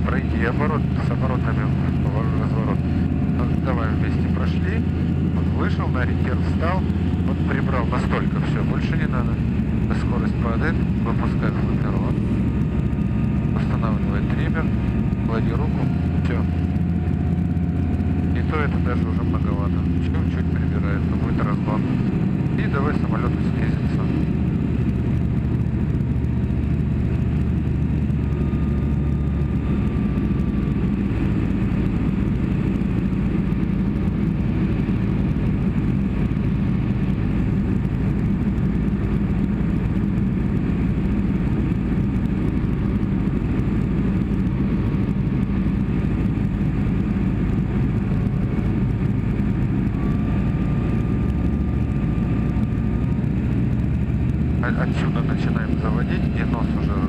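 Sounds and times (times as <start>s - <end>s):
propeller aircraft engine from cockpit: 0.0s - 57.0s.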